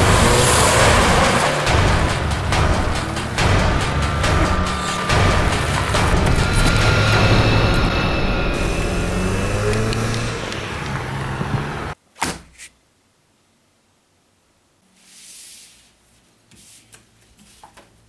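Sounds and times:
car engine running: 0:00.0 - 0:12.0.

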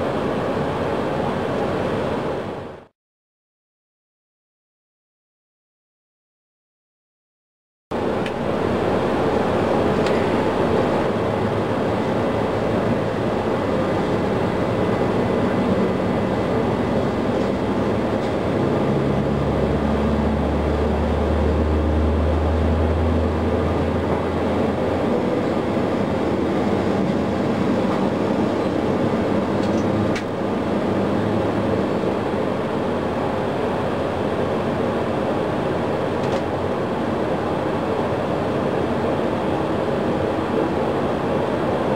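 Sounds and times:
jet engine roar: 0:00.0 - 0:02.9, 0:07.9 - 0:41.9
deeper hum: 0:07.9 - 0:33.2.

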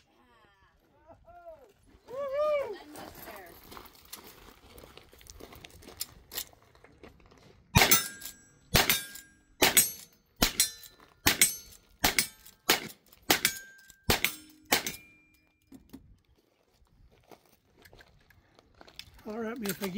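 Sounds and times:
rifle shots: 0:07.8 - 0:15.2
metallic ring of steel target: 0:07.8 - 0:15.5.

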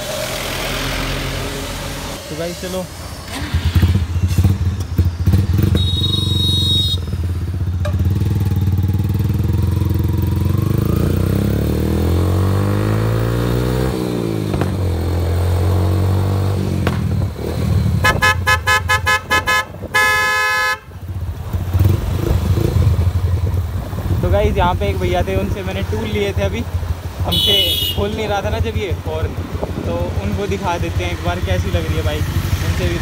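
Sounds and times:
motorcycle horn beeping: 0:05.6 - 0:07.2, 0:18.0 - 0:21.0, 0:27.3 - 0:28.2.

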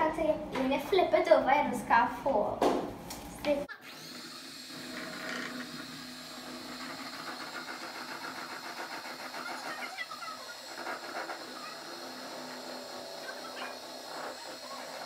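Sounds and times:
electric hand mixer whipping: 0:03.7 - 0:15.0.

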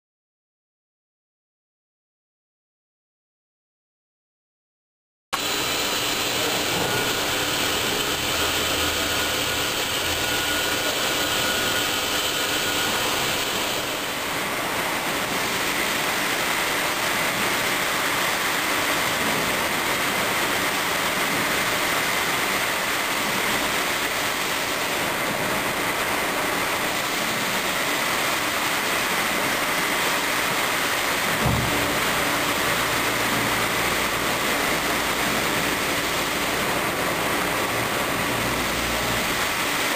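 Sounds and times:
faint high whine: 0:05.4 - 0:18.1
gear grinder rushing with coolant: 0:05.4 - 0:39.9
low thump: 0:31.4 - 0:31.9.

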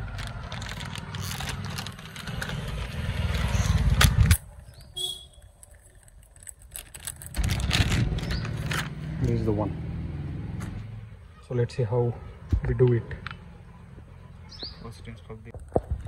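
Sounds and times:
plastic packaging crinkling: 0:00.0 - 0:04.0, 0:04.6 - 0:09.0.

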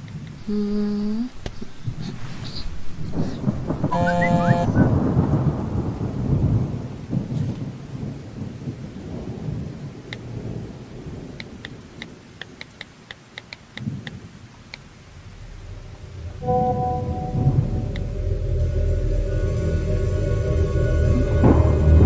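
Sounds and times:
rain: 0:00.0 - 0:22.0
low rumbling thunder: 0:00.1 - 0:12.4, 0:13.8 - 0:22.0
smartphone keyboard ticks: 0:11.4 - 0:14.8.

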